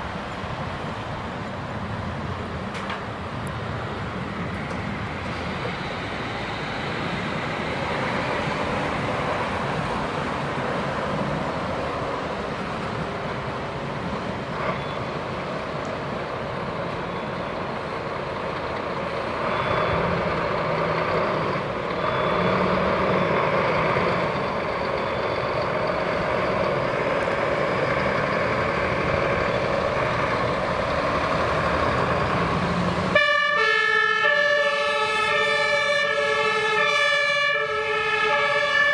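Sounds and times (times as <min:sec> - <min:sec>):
fire truck diesel engines: 0:00.0 - 0:38.9
two-tone air-horn siren: 0:33.1 - 0:38.9.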